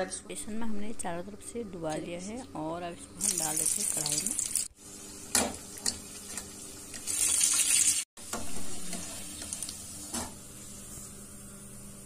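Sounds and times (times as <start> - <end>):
deep-frying sizzle in oil: 3.2 - 11.2.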